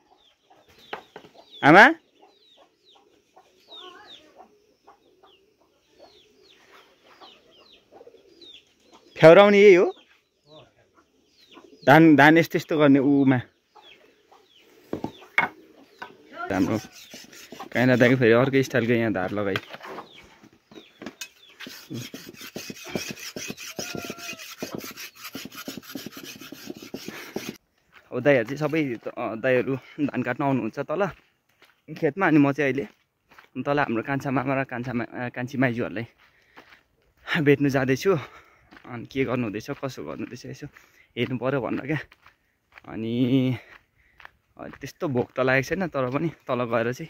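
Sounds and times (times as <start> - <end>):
chickens clucking faintly: 0.0 - 31.2
sickle blade sharpening strokes: 16.5 - 18.1, 21.2 - 27.6.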